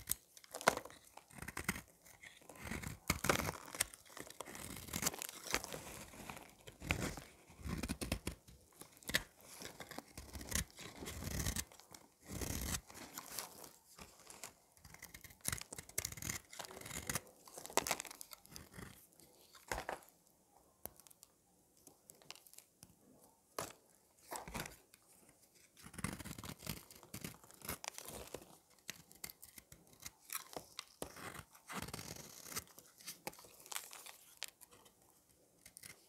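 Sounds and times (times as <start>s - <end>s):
blade scraping soap: 0.0s - 19.7s, 25.8s - 34.5s.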